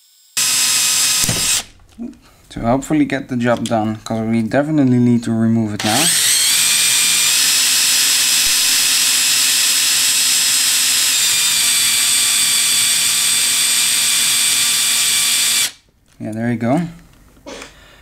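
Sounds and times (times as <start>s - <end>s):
electric drill high whine: 0.0s - 1.7s, 5.8s - 15.8s.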